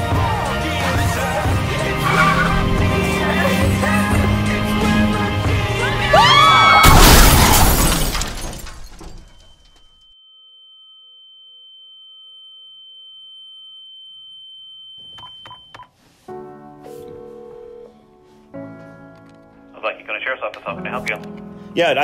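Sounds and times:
tires screeching: 0.4 - 8.2
car collision: 1.8 - 9.9
glass shattering: 6.8 - 10.0.

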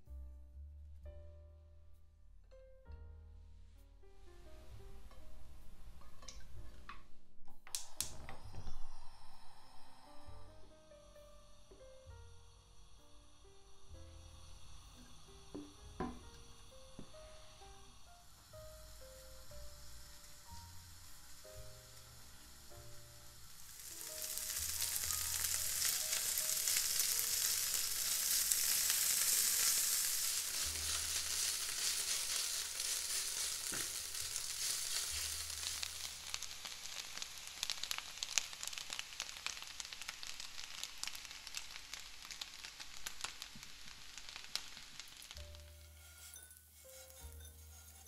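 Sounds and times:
food sizzling in hot oil: 7.8 - 48.0
oil crackling and spitting: 14.5 - 45.7.

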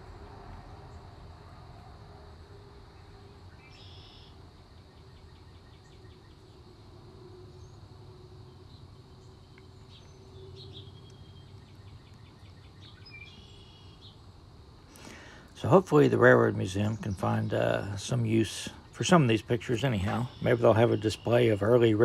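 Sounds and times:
small birds chirping: 2.9 - 6.7, 7.4 - 22.0
rapid ticking bird trills: 3.5 - 6.6, 7.5 - 22.0
thin steady high tone: 15.0 - 22.0.

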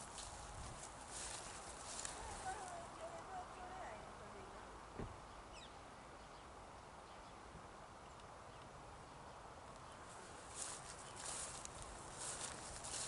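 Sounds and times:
footsteps crunching through grass: 0.0 - 3.2, 10.1 - 13.0.

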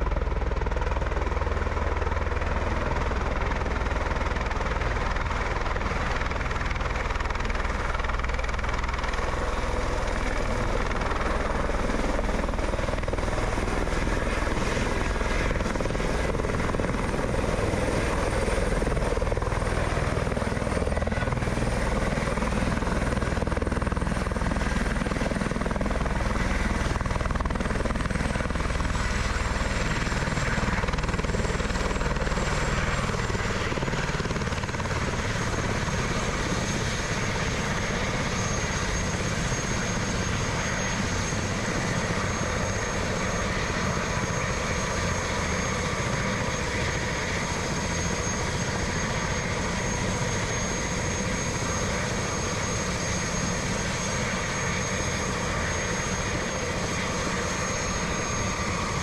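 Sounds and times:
helicopter rotor and turbine whine: 0.0 - 59.0.

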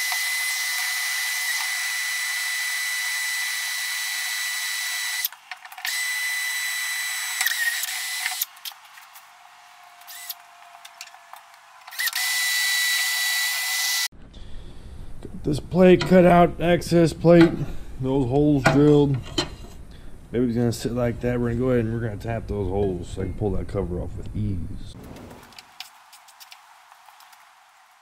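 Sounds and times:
cordless drill whining: 0.0 - 8.7, 9.9 - 14.1.

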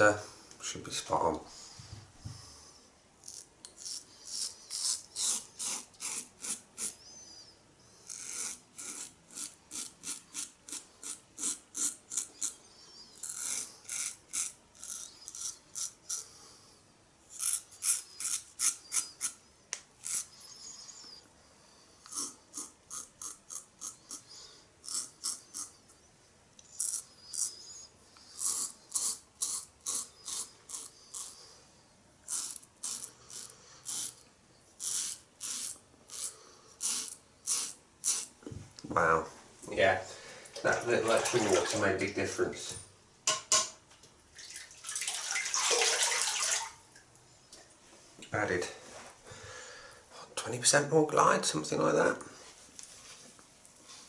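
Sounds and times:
razor cutting stubble: 3.2 - 7.0, 8.0 - 16.3, 17.3 - 19.4, 20.0 - 20.4, 22.0 - 25.8, 28.3 - 31.4, 32.2 - 34.2, 34.8 - 38.4.

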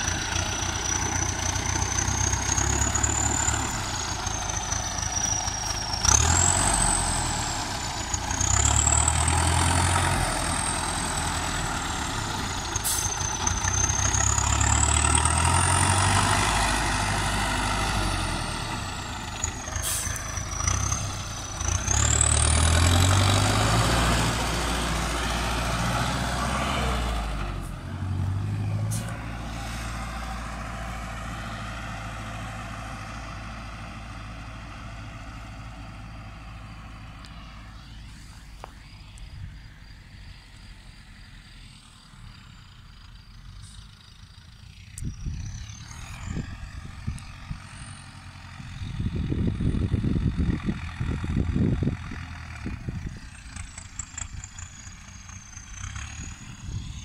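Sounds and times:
tractor diesel engine revving: 0.0 - 57.0
turbo whine: 35.9 - 48.0, 52.7 - 57.0.

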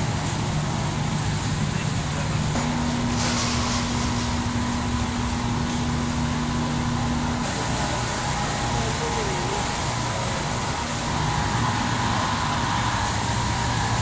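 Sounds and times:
refrigeration and ventilation hum: 0.0 - 14.0.

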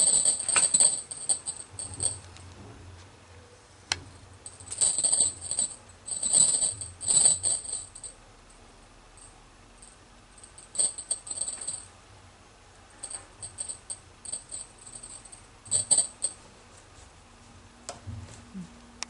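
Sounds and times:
high bright jingling rattles: 0.0 - 2.3, 4.4 - 8.2, 9.2 - 11.9, 13.0 - 16.4.

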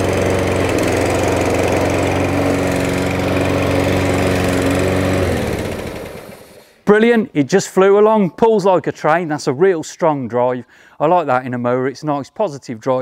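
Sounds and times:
lawnmower engine running: 0.0 - 6.9.

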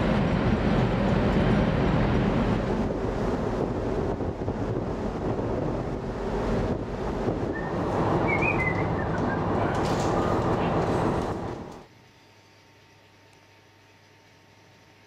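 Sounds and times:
wind buffeting microphone: 0.0 - 11.8
ferry engines rumbling: 0.0 - 11.9.

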